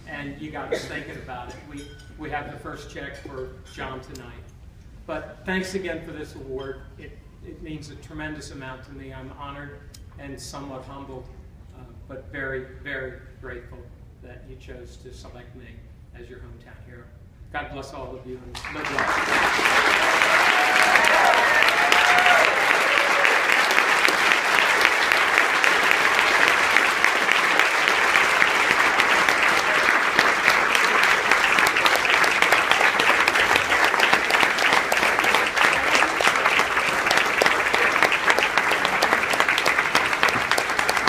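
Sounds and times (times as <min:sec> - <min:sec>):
audience applauding: 0:18.6 - 0:41.0.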